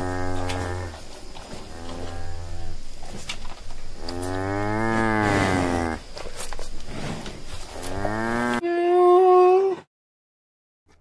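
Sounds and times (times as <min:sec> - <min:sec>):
large farm animal calling: 0:00.0 - 0:01.0.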